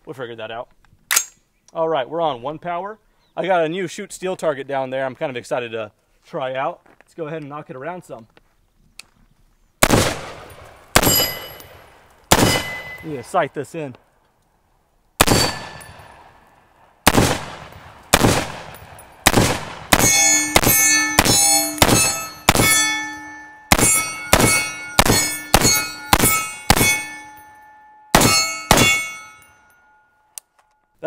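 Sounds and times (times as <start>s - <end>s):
pistol gunshots: 9.8s - 13.2s, 15.2s - 16.4s, 17.0s - 22.8s, 23.7s - 27.3s, 28.1s - 29.4s
steel plate ringing clang: 11.0s - 11.7s, 12.3s - 13.2s, 15.3s - 16.0s, 20.0s - 30.2s.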